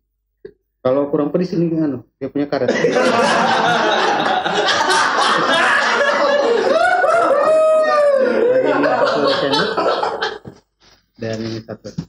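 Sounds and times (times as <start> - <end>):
men laughing: 2.7 - 10.7.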